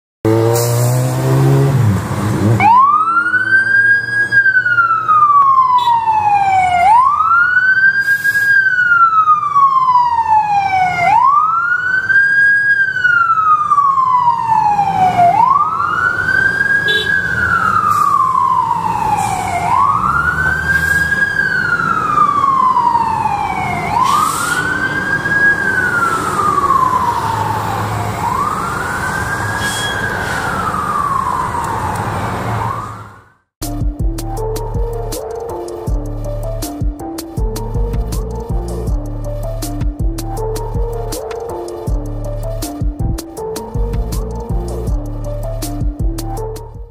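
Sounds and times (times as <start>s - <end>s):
fire engine siren wailing: 2.4s - 33.5s.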